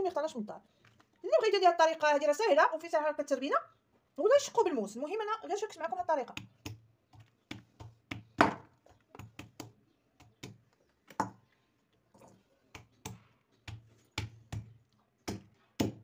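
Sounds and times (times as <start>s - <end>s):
pestle knocking on olives: 6.2s - 11.4s, 12.8s - 16.0s.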